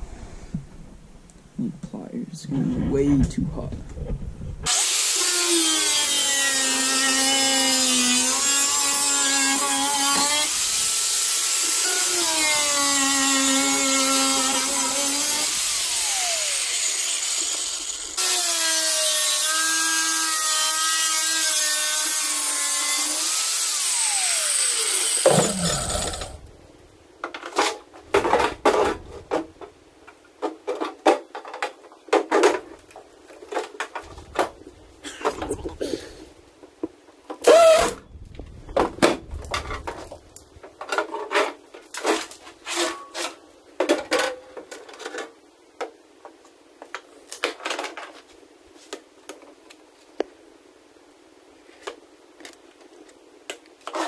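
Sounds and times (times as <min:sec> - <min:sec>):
angle grinder cutting metal: 0:04.7 - 0:26.5.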